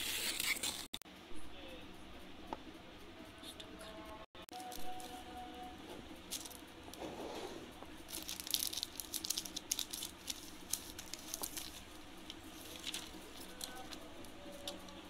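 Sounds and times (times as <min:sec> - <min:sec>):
foam sheet crinkling: 0:08.1 - 0:15.0.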